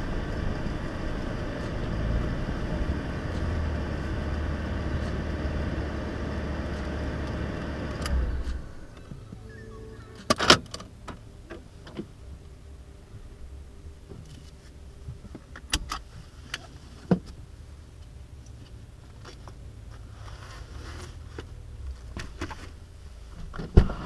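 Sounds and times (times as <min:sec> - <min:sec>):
steady low hum: 0:00.0 - 0:24.0
sharp clicks and knocks from gear: 0:06.7 - 0:09.2, 0:15.2 - 0:17.4.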